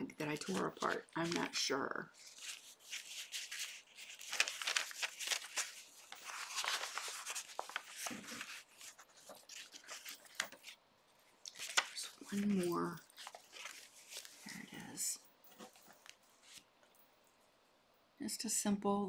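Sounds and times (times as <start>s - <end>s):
paper pages rustling: 0.2s - 16.7s.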